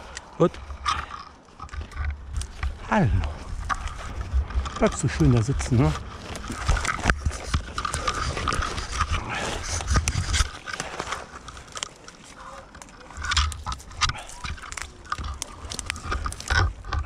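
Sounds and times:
low handling rumbles: 0.0s - 10.5s
branches rustling: 0.0s - 17.0s
carabiner clicking and scraping: 0.0s - 17.0s.

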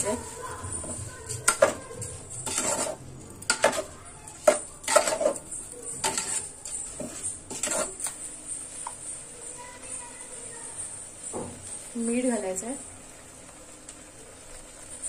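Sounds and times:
spoon scraping pressure cooker: 0.8s - 9.0s.

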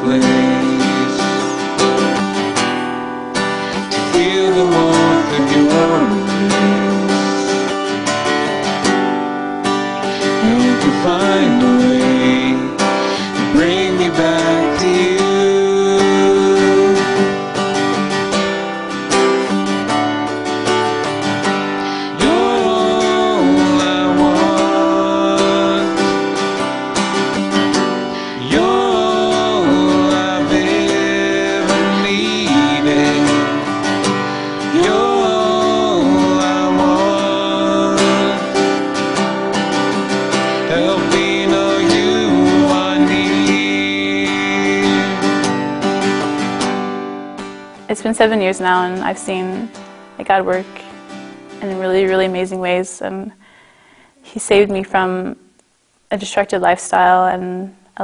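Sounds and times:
man and woman singing: 0.0s - 1.8s, 3.6s - 7.8s, 10.0s - 17.4s, 21.8s - 26.6s, 28.1s - 39.1s, 40.0s - 45.6s
strummed acoustic guitar: 0.0s - 55.3s.

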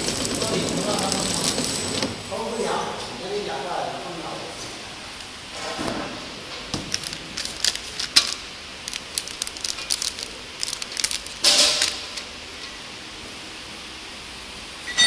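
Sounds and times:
plastic film crinkling: 0.0s - 2.0s, 6.7s - 12.3s.

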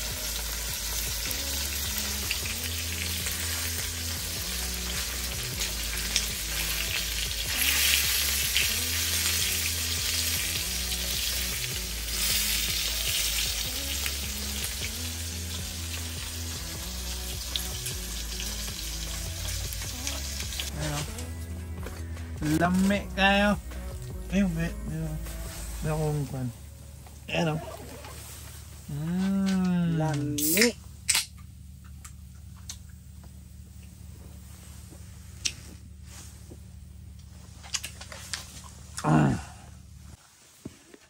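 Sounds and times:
steak sizzling in a pot: 0.0s - 21.0s.

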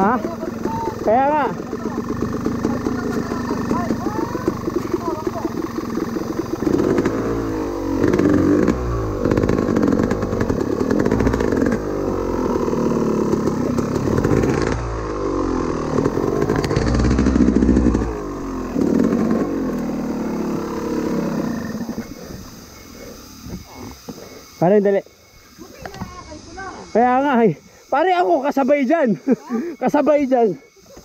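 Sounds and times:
dirt bike engine revving: 0.0s - 31.0s.

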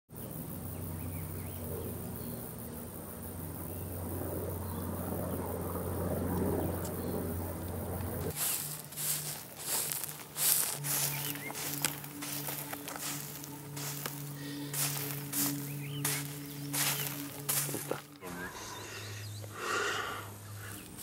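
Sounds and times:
low hum: 0.2s - 21.0s
push broom scraping gravel: 8.3s - 19.4s.

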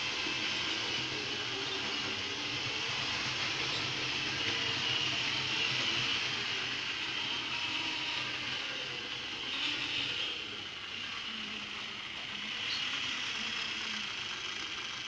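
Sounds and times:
model train motor whirr: 0.0s - 15.0s
wheels rolling on rails: 0.0s - 15.0s.

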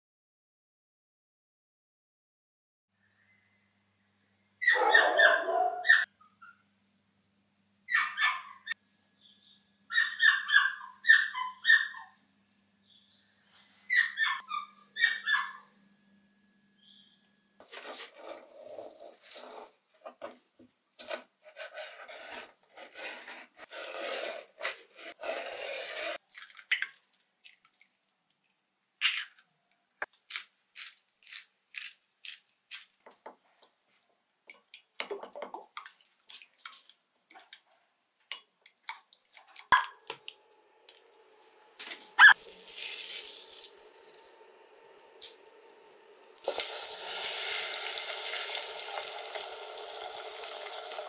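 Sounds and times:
electric hob humming: 40.0s - 51.0s.

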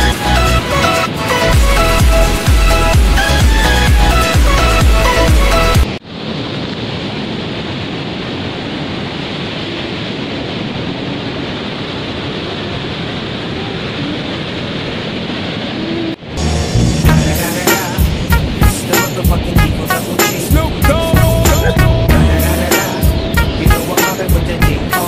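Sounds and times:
electronic music: 0.0s - 5.9s, 16.3s - 25.0s
ocean surf breaking: 0.0s - 25.0s.

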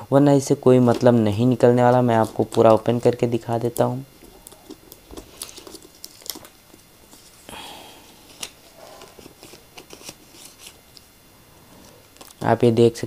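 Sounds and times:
paper rustling and crinkling: 0.7s - 7.5s, 8.1s - 11.0s
paper tearing: 8.2s - 10.8s.

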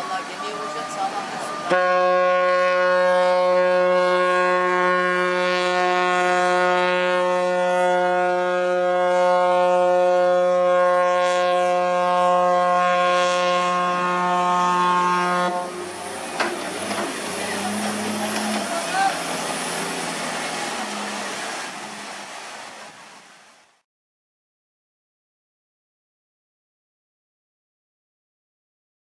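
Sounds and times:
ship's horn blast: 0.0s - 22.9s.

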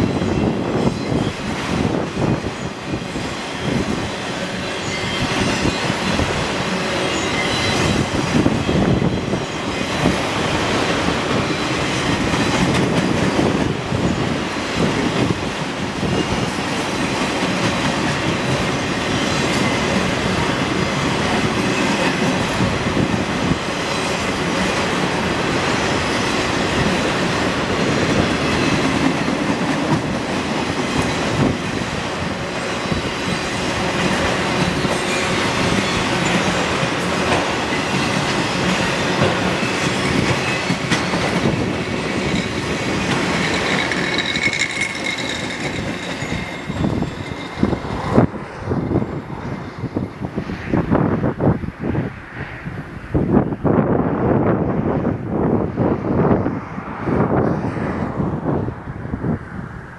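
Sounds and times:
train wheels rumbling and rattling: 0.0s - 51.8s
clickety-clack over track: 0.0s - 52.2s
high wheel squeal: 2.5s - 10.4s, 39.1s - 49.5s.

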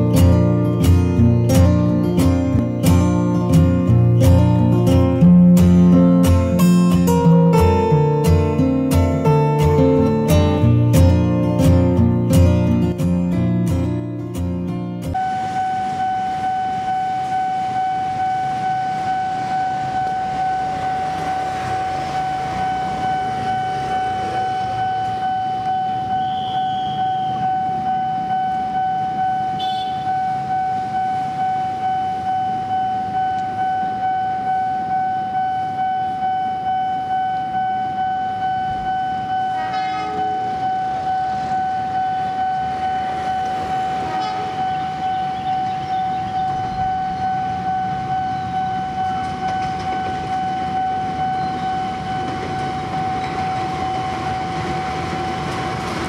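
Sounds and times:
diesel locomotive rumble: 0.0s - 29.6s, 30.3s - 56.0s
level crossing alarm pulsing: 0.0s - 56.0s
locomotive horn blast: 15.2s - 23.5s, 26.2s - 27.5s, 29.5s - 30.2s, 39.3s - 56.0s.

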